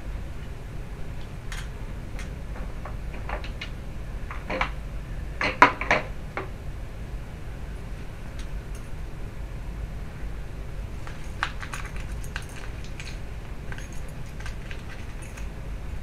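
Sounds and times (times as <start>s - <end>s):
tools clinking on plastic tray: 11.1s - 15.5s.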